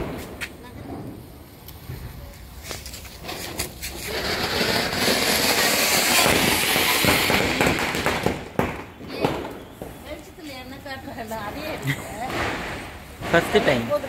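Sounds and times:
sharp firework pops: 0.0s - 10.3s, 12.3s - 14.0s
firework fountain hissing: 0.0s - 14.0s.

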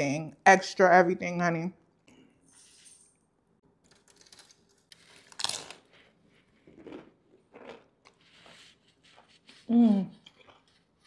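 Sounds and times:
person chewing food: 3.9s - 9.5s, 10.2s - 11.0s.

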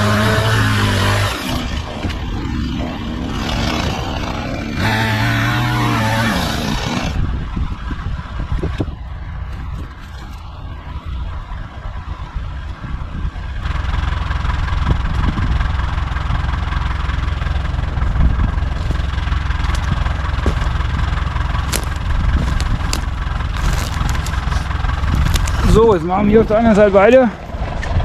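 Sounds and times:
tractor engine running: 13.5s - 28.0s
branches cracking underfoot: 18.7s - 26.0s.

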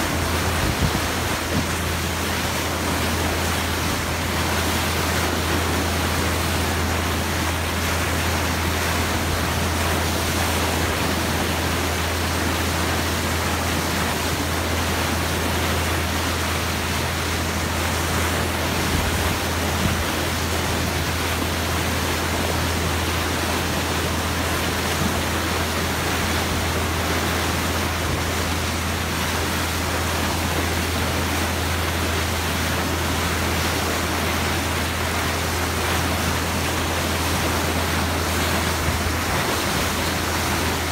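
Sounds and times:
bow wave rushing past hull: 0.0s - 40.9s
constant low hum: 0.0s - 40.9s.

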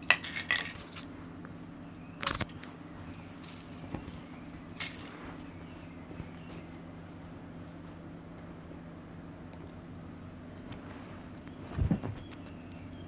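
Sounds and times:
low hum: 0.0s - 13.0s
kittens rustling and knocking: 10.8s - 12.6s.

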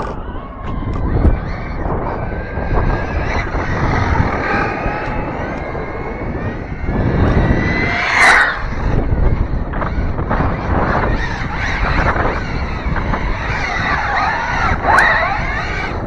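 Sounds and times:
rc car electric motor whining: 0.0s - 16.0s
wind on microphone: 0.0s - 16.0s.

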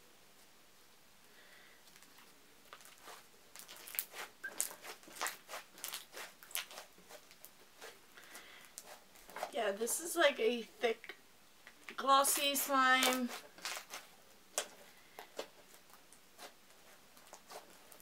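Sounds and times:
slime squished by hand: 2.7s - 7.9s.

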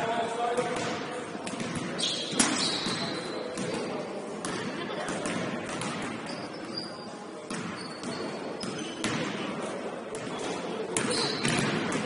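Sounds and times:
basketball bouncing on court: 0.6s - 3.8s, 4.4s - 6.4s, 7.5s - 9.4s, 11.0s - 12.0s
short high squeaks: 2.0s - 3.4s.

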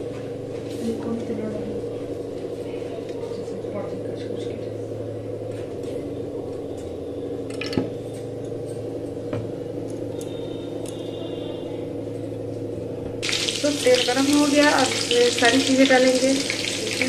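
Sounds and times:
electrical hum: 0.0s - 17.0s.

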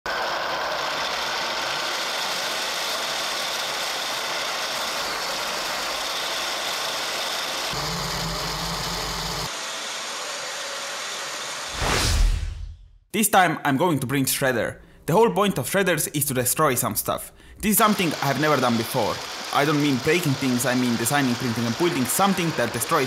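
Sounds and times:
shredder motor chewing lettuce: 0.1s - 11.7s, 17.8s - 23.0s.

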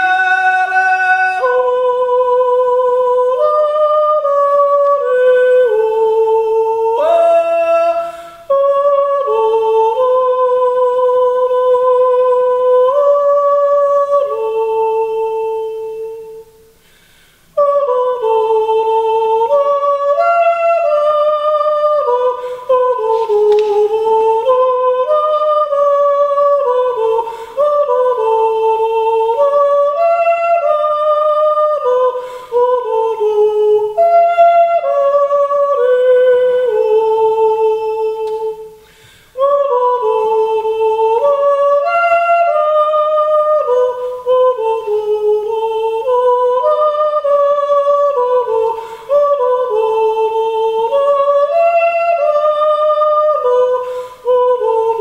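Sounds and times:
man breathing: 8.0s - 8.5s, 16.8s - 17.6s, 27.2s - 27.6s, 32.2s - 32.6s, 38.8s - 39.4s, 48.8s - 49.1s, 53.8s - 54.3s.

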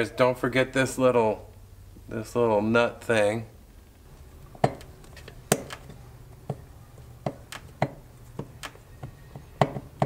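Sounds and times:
sharp metal clicks and knocks: 4.2s - 10.0s.

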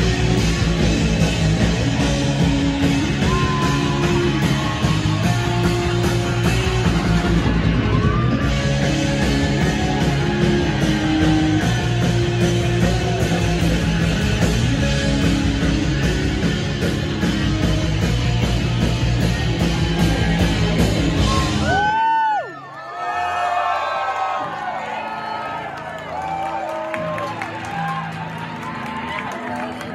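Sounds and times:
electric guitar: 0.0s - 22.0s
steady drum beat: 0.0s - 22.0s
punk rock band playing: 0.0s - 22.1s.

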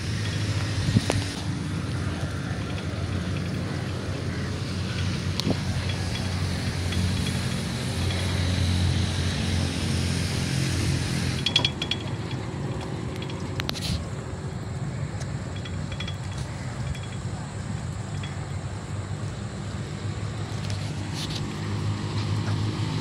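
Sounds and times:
wind on microphone: 0.0s - 3.7s
phone handling rumble: 0.0s - 19.8s
faint regular ticking: 0.0s - 20.8s.

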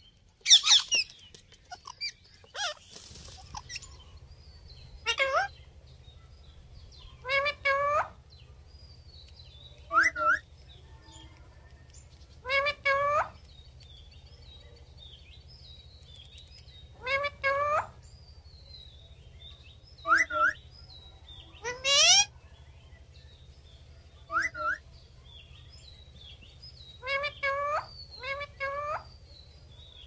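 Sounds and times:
faint bird chirps: 0.0s - 30.0s
parakeets squawking: 0.4s - 4.2s, 4.8s - 5.7s, 7.0s - 8.2s, 9.9s - 10.5s, 12.4s - 13.4s, 16.9s - 18.0s, 20.0s - 20.6s, 21.6s - 22.3s, 24.3s - 24.8s, 26.9s - 29.2s.

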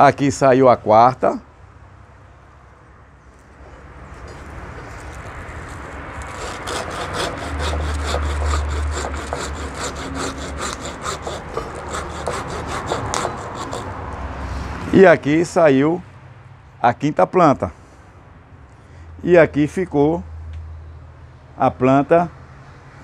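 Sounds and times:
hand saw cutting branch: 3.7s - 14.0s.

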